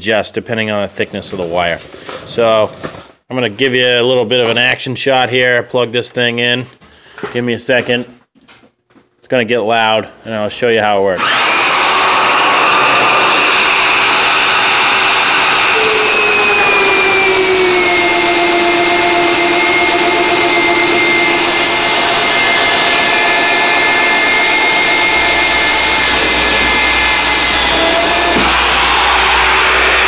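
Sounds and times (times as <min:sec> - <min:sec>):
electric drill whining: 0:11.2 - 0:30.0.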